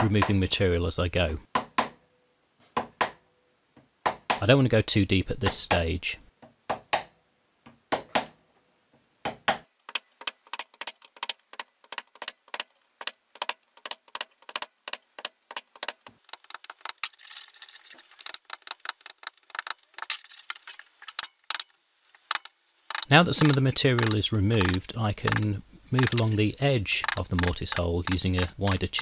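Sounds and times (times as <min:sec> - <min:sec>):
chisel tapping into wood: 0:22.9 - 0:25.4.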